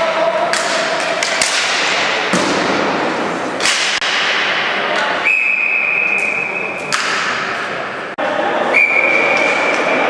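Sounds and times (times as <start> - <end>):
hockey sticks clacking ball: 0.0 - 5.2, 6.0 - 7.8
noisy hall din: 0.0 - 10.0
ball hitting boards: 0.5 - 3.0.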